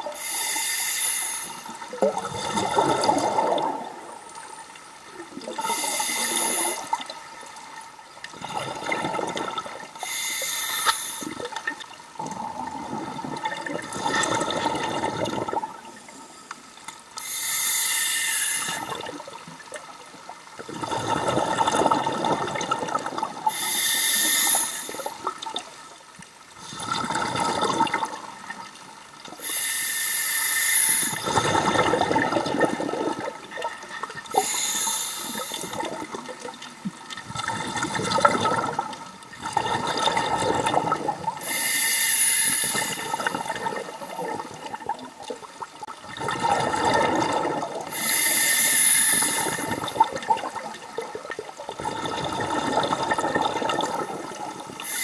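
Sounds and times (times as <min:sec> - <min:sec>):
regulator inhalation hiss: 0:00.1 - 0:01.8, 0:05.6 - 0:07.0, 0:10.0 - 0:11.4, 0:17.2 - 0:19.0, 0:23.5 - 0:25.2, 0:29.4 - 0:31.3, 0:34.3 - 0:35.9, 0:41.4 - 0:43.4, 0:47.9 - 0:49.9, 0:54.8 - 0:55.0.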